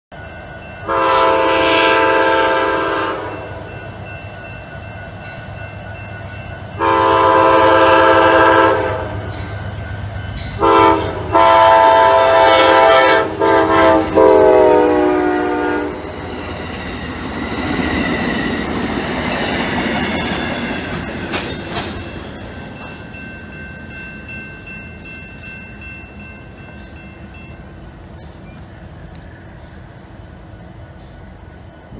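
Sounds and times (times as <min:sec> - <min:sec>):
locomotive horn blasts: 0:00.8 - 0:03.7, 0:06.8 - 0:09.3, 0:10.6 - 0:16.2.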